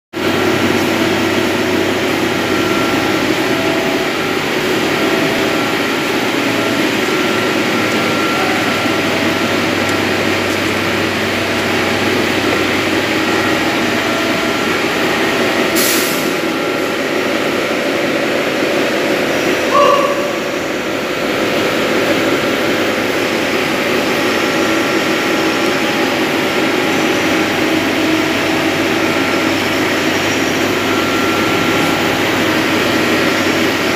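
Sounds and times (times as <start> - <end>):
machinery droning: 0.2 - 33.9
brief hiss: 15.8 - 16.4.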